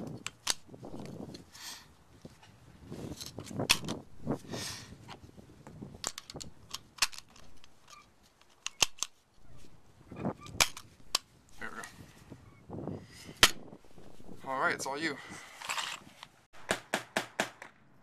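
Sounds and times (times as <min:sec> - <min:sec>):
cartridges clicking into magazine: 0:06.0 - 0:09.2.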